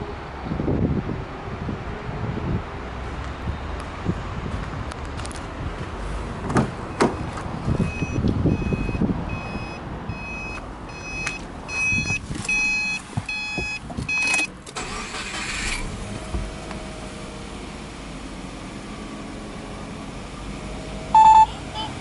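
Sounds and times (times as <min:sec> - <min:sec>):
car warning chime beeping: 0:07.9 - 0:15.1, 0:21.2 - 0:22.0.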